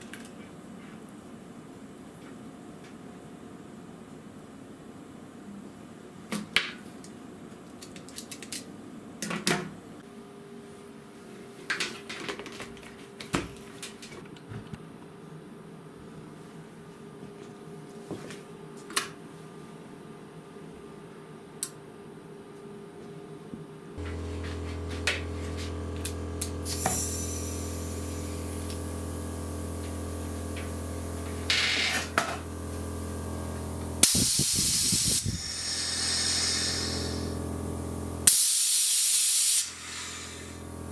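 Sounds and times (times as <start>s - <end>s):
small parts clicking and clattering: 7.7s - 8.7s
steady low hum: 23.9s - 38.3s, 39.6s - 40.9s
puff of escaping air: 26.6s - 28.8s, 34.0s - 37.4s, 38.2s - 40.6s.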